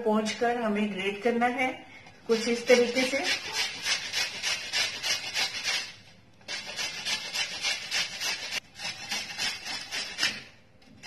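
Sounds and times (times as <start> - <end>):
grater rasping: 2.3 - 10.6.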